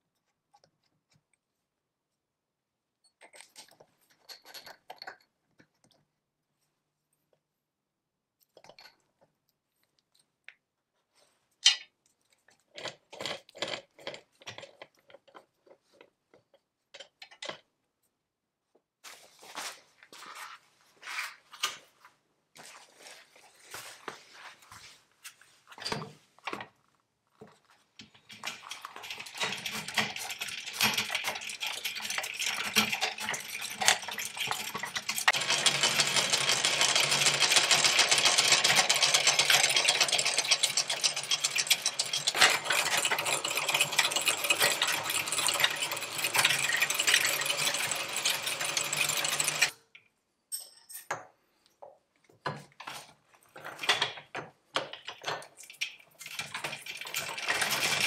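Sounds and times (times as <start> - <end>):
pedal lathe mechanical rattle: 28.3 - 49.7, 56.2 - 58.0.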